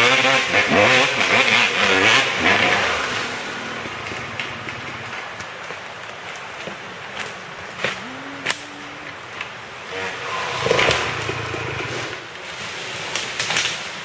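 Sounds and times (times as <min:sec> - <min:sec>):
dirt bike engine revving: 0:00.0 - 0:05.2, 0:07.9 - 0:12.3.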